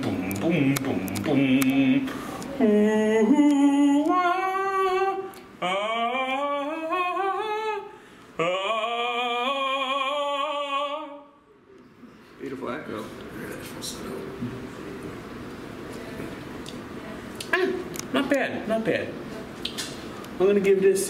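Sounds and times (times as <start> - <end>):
man singing long notes: 0.0 - 11.3.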